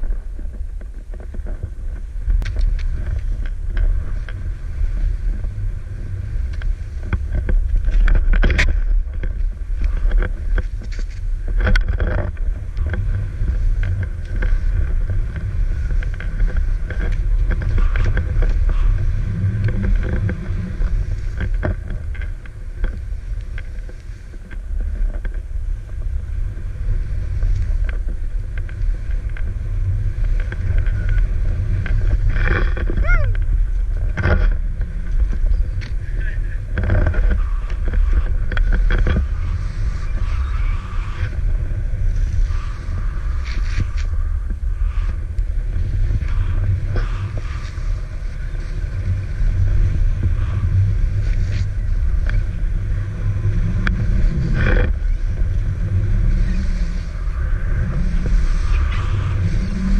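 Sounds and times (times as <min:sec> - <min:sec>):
snowboard knocks and scrapes: 0:00.0 - 0:41.0
wind buffeting microphone: 0:00.0 - 0:59.9.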